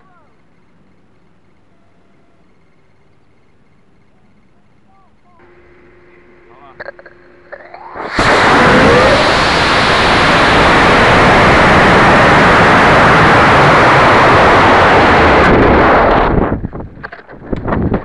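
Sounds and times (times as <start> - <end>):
rocket motor exhaust rushing: 5.4 - 18.0
wind gusts on microphone: 7.8 - 18.0.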